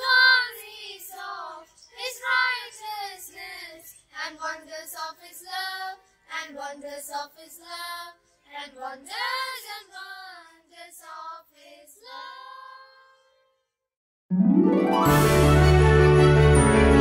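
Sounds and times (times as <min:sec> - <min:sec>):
child singing: 0:00.0 - 0:13.2.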